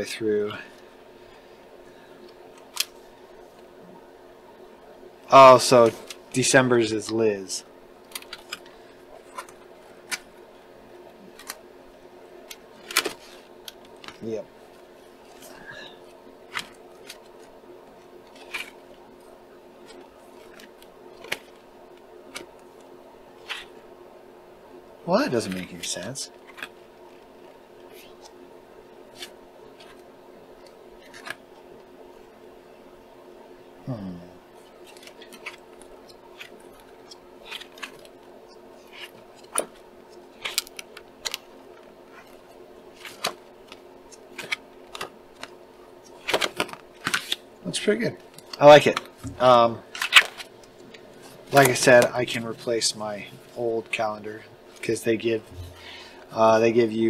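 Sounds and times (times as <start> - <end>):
faint steady hum: 0.0 - 57.0
paper pages snapping: 11.3 - 11.6, 12.5 - 14.2, 18.2 - 18.8, 26.4 - 26.8, 30.6 - 31.4, 34.8 - 38.2, 38.8 - 41.5, 42.1 - 47.4, 48.3 - 52.1.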